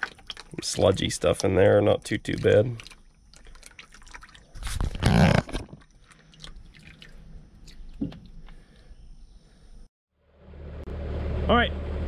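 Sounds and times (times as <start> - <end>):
oil dripping: 0.0 - 9.6.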